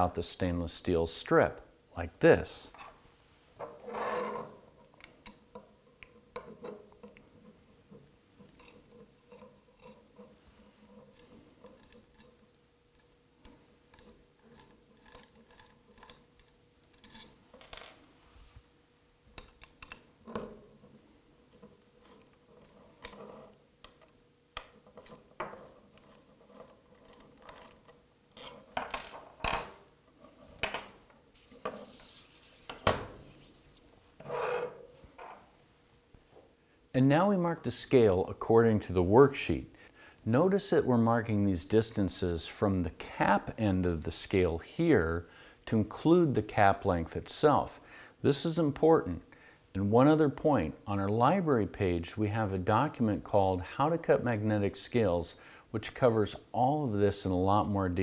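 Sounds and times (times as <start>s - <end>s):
metal strip sliding out: 31.4s - 34.8s.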